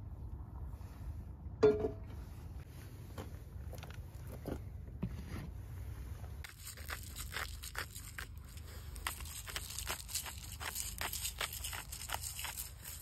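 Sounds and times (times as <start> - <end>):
dog chewing and crunching: 6.4 - 13.0.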